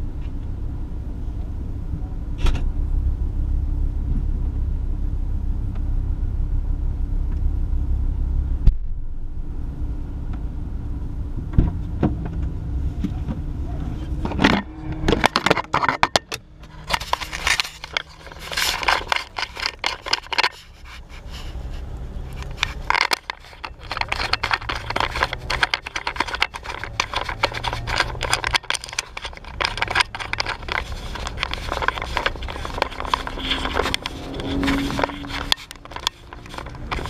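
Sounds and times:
car engine running: 0:00.0 - 0:37.0
camera handling scraping: 0:14.0 - 0:37.0.

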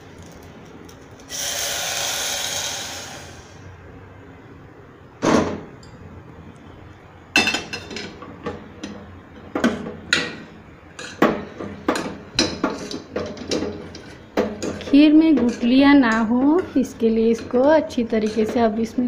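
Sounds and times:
spoon scraping metal pot: 0:12.6 - 0:19.0.

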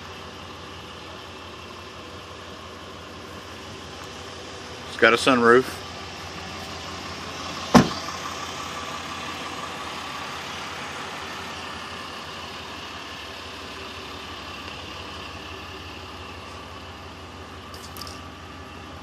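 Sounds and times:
diesel engine idling: 0:00.0 - 0:19.0
truck door shutting: 0:07.6 - 0:08.1.

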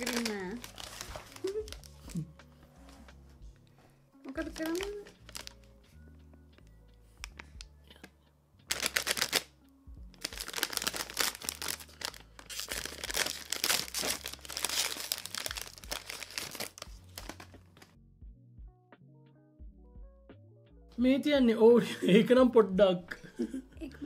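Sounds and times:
plastic wrapper crinkling and tearing: 0:00.0 - 0:02.4, 0:04.3 - 0:05.7, 0:08.7 - 0:09.5, 0:10.1 - 0:17.9
soft background music: 0:00.0 - 0:24.0.

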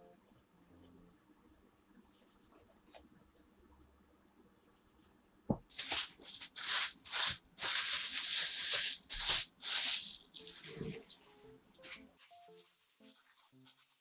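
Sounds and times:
rustling rubbing strokes: 0:05.7 - 0:11.2, 0:11.9 - 0:14.0.

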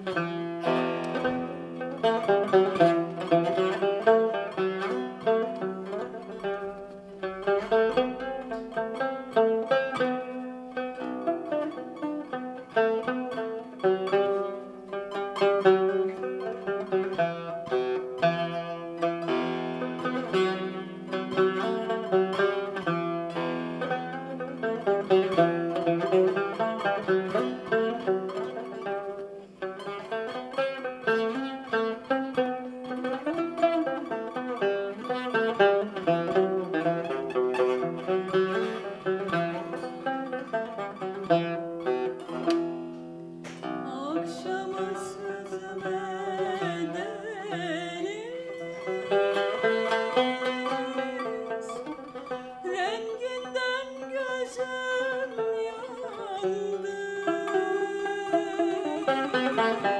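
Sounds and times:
plucked lute melody: 0:00.0 - 0:59.9
woman singing: 0:43.9 - 0:59.9.

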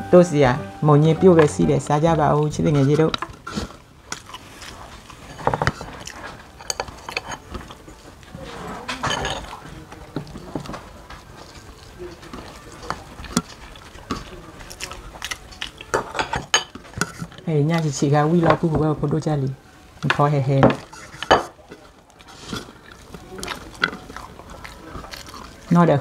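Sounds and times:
people chewing: 0:00.6 - 0:26.0.

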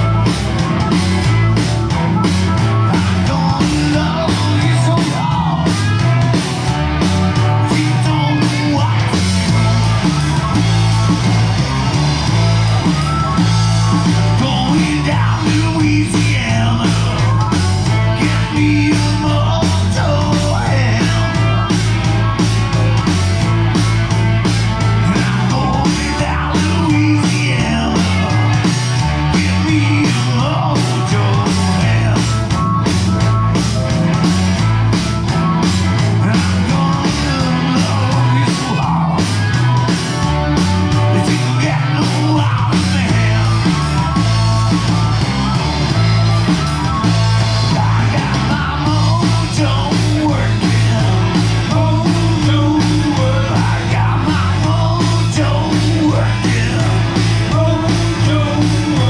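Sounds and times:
rock song with singer: 0:00.0 - 0:59.0.

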